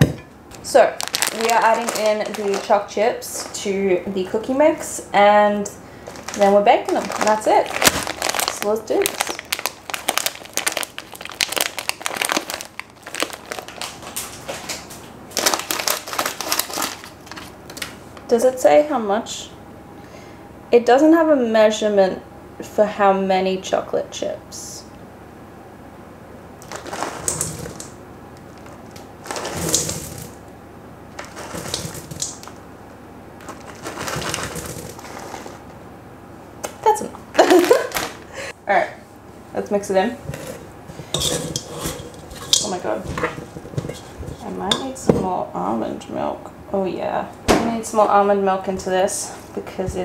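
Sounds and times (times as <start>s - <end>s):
plastic packet crinkling: 0.6s - 3.7s, 6.0s - 18.0s, 26.6s - 30.4s, 31.2s - 32.6s, 33.4s - 35.7s, 37.4s - 38.3s
chips pattering into steel bowl: 26.6s - 30.4s, 31.2s - 32.5s, 33.4s - 35.6s, 40.3s - 45.0s.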